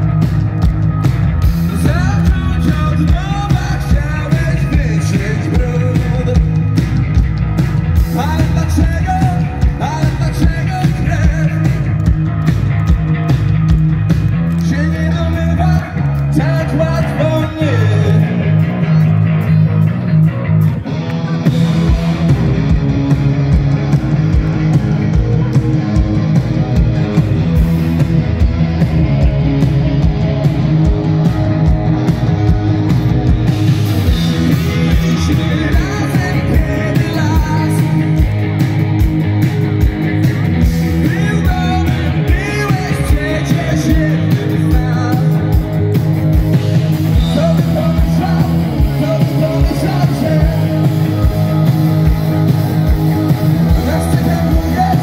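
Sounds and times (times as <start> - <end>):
drums: 0.0 - 55.0
live rock band playing: 0.0 - 55.0
person singing: 34.3 - 38.3, 40.8 - 45.7, 47.1 - 52.0, 53.6 - 55.0.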